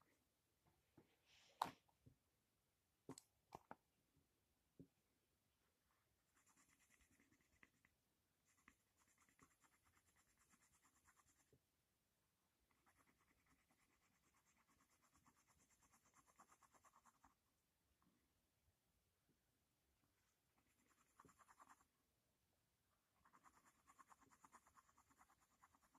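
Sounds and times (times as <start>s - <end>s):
pencil shading on paper: 6.3s - 7.8s, 8.4s - 11.5s, 12.7s - 17.4s, 20.6s - 21.9s, 23.2s - 25.9s.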